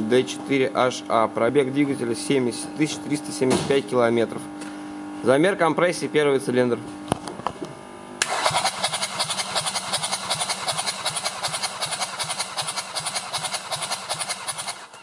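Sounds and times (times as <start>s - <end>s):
engine cranking on starter motor: 8.2s - 15.0s.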